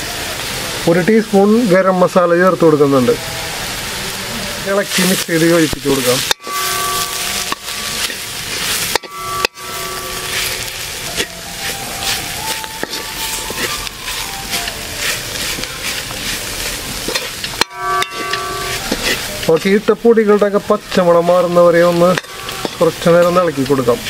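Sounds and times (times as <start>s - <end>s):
food sizzling in oil: 0.0s - 24.0s
spatula scraping metal pan: 4.8s - 24.0s.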